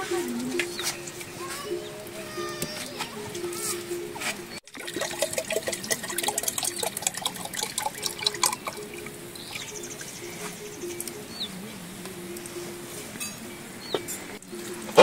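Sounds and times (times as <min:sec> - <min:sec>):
water splashing and dripping: 0:04.6 - 0:10.3.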